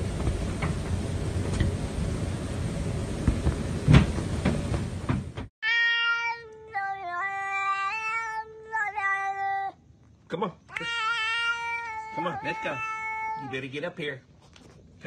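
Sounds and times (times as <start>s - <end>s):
cat yowling: 5.6s - 9.7s, 10.7s - 13.6s.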